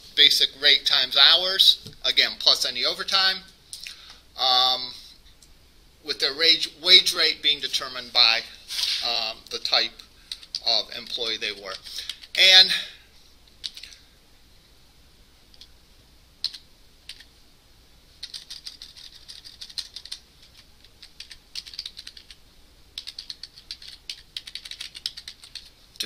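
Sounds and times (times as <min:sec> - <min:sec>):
keyboard typing: 0:18.2 - 0:22.4, 0:23.0 - 0:25.7.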